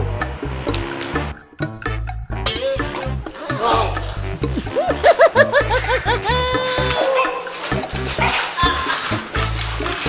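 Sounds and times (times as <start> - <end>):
music with bass and beat: 0.0 - 7.0.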